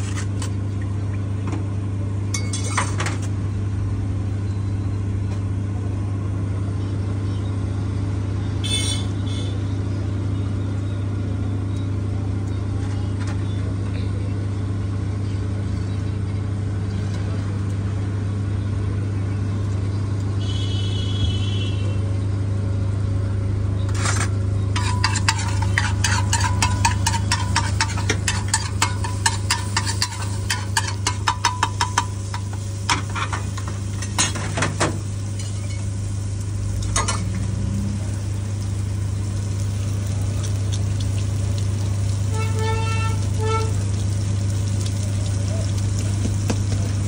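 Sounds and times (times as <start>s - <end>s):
spatula chopping on a griddle: 24.0s - 35.8s, 46.0s - 47.0s
food sizzling: 24.0s - 47.0s.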